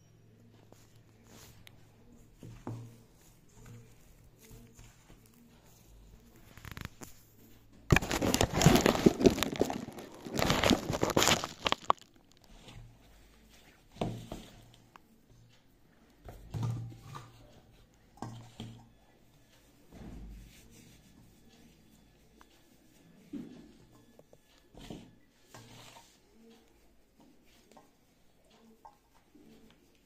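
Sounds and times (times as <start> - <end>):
hands mixing dough in steel bowl: 0.4 - 30.0.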